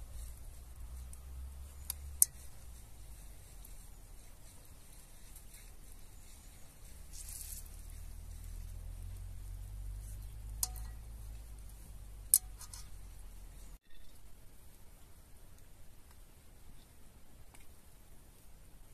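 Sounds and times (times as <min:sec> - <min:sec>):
metallic clinks against pot: 0:10.5 - 0:11.2, 0:12.3 - 0:13.0.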